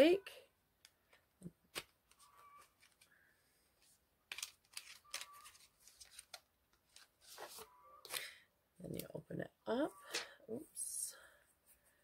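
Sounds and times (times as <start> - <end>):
packaging clicks and crinkles: 4.3 - 7.1.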